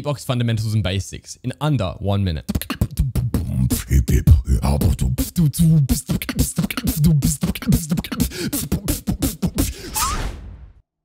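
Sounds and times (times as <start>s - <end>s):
man beatboxing: 2.4s - 10.1s.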